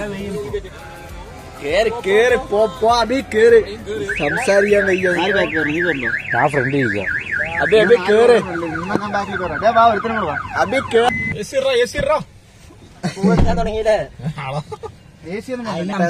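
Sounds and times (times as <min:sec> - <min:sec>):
electronic siren warbling: 0:04.1 - 0:11.1.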